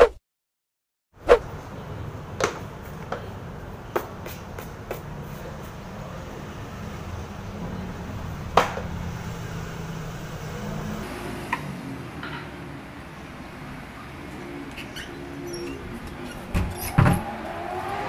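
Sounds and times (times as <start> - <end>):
city traffic rumble: 1.2 - 18.0
shoe clicks and knocks: 3.9 - 5.8.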